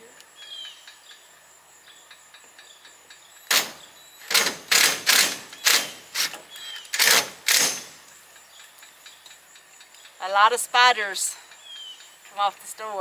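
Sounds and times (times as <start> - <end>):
cordless power driver driving screws: 3.5 - 7.9.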